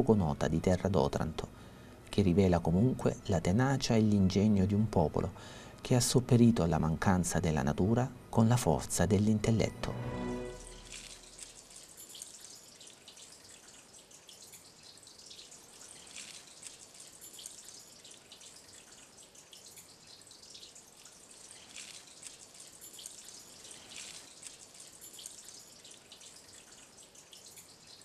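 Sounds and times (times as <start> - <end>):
soft hiss: 0.0 - 28.0
water dripping: 10.4 - 28.0.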